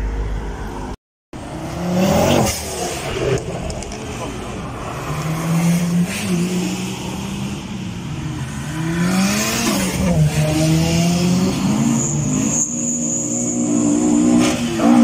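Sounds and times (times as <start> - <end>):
cars revving past: 1.4 - 12.8.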